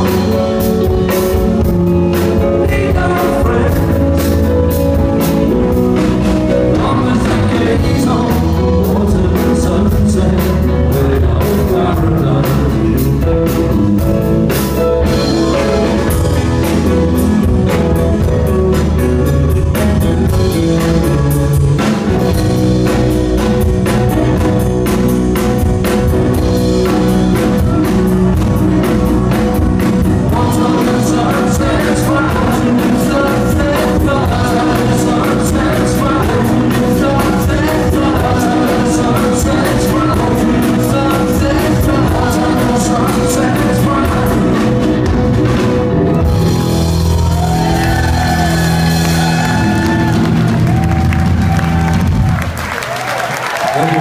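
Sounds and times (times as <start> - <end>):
person singing: 0.0 - 19.4, 25.8 - 46.2
steady drum beat: 0.0 - 53.0
live rock band playing: 0.0 - 54.0.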